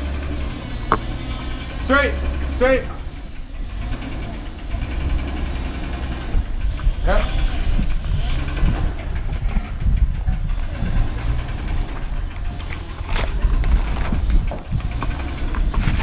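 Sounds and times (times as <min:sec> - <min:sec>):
off-road vehicle engine rumbling: 0:00.0 - 0:16.0.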